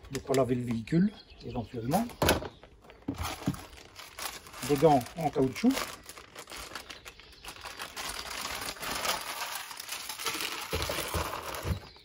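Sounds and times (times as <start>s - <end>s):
plastic packaging crinkling: 2.7s - 12.0s.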